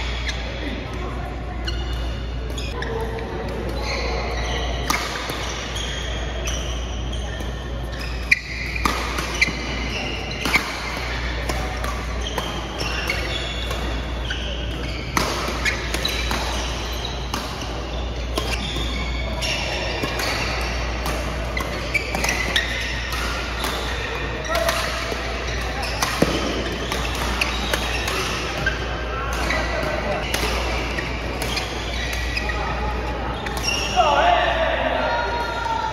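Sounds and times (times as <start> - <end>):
shoes squeaking on court: 0.0 - 35.5
din of busy hall: 0.0 - 35.9
rackets striking shuttlecock: 7.4 - 34.0.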